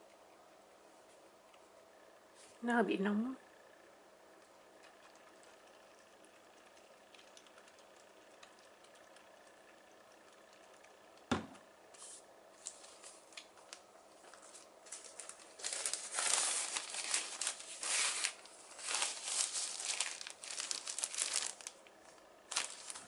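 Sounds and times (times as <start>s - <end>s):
plastic gloves crinkling: 12.1s - 23.0s.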